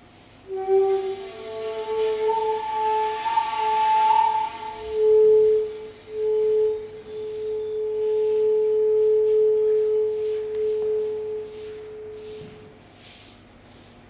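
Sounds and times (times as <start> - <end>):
bamboo flute note: 0.4 - 12.8.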